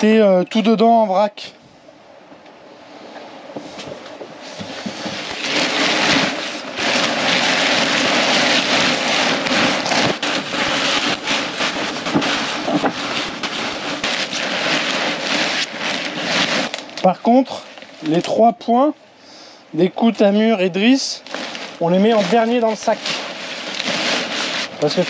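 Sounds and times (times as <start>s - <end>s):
sailcloth rustling and crumpling: 3.6s - 18.5s, 20.0s - 25.0s.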